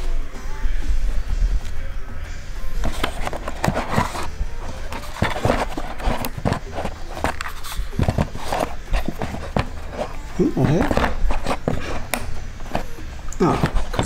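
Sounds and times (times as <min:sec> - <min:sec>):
objects clicking on a desk: 0:02.8 - 0:14.0.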